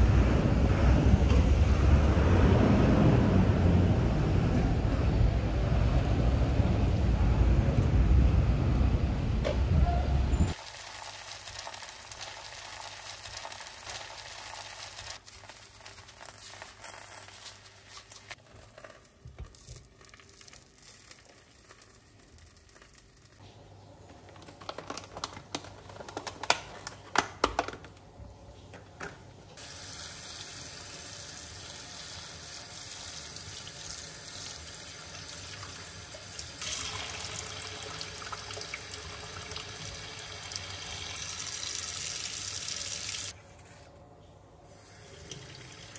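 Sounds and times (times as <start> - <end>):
tap water running into sink: 29.6 - 43.3.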